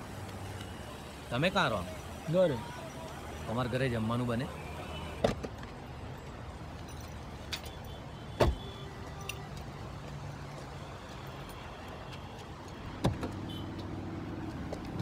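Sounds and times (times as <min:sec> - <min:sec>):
car door slamming: 0:08.3 - 0:08.7.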